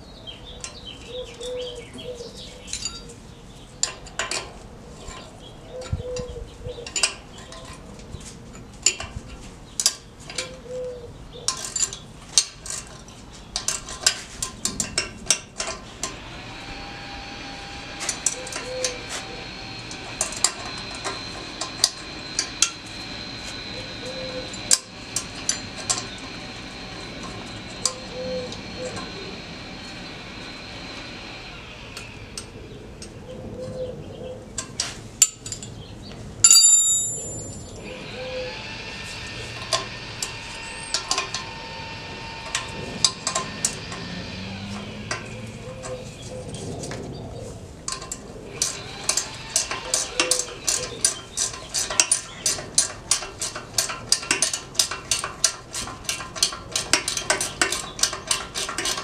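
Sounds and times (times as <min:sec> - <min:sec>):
loud metallic clank: 0:36.5 - 0:37.7
wrench clicking: 0:47.9 - 0:59.0.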